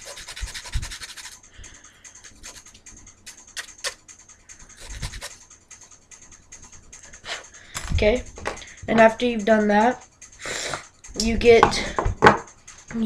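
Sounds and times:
file scraping wood: 0:00.0 - 0:01.4, 0:02.2 - 0:04.0, 0:04.8 - 0:05.4.

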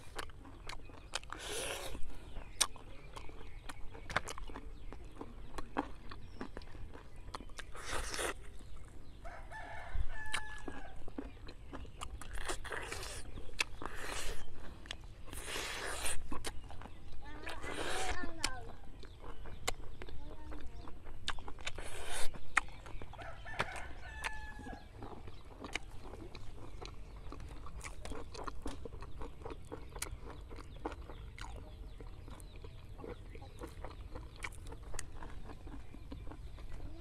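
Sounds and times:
chickens clucking and crowing: 0:08.9 - 0:12.0, 0:22.8 - 0:27.8.

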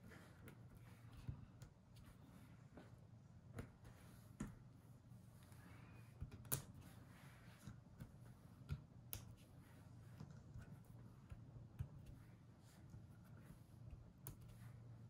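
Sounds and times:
faint small clicks and taps: 0:06.2 - 0:06.8, 0:07.6 - 0:09.5, 0:10.1 - 0:14.6.

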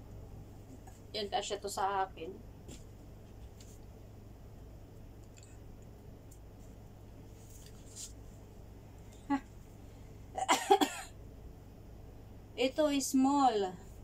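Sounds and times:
low steady hum: 0:00.0 - 0:14.0
fabric rustling: 0:02.6 - 0:04.0, 0:06.5 - 0:08.5.

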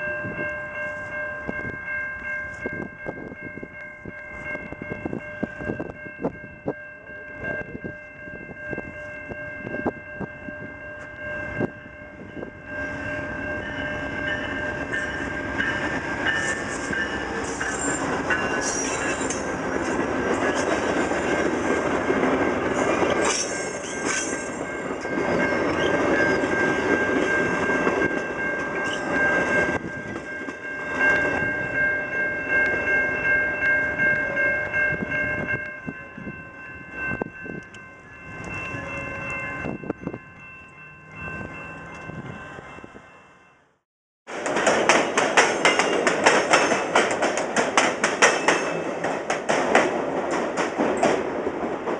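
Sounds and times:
passenger train passing: 0:00.0 - 0:51.9
wheels clattering over rail joints: 0:44.3 - 0:51.9.

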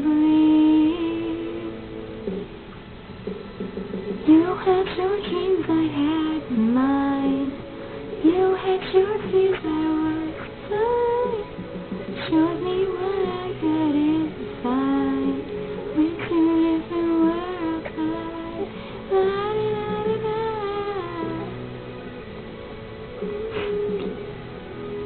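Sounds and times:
girl singing pop melody: 0:00.0 - 0:02.0, 0:04.2 - 0:21.8.

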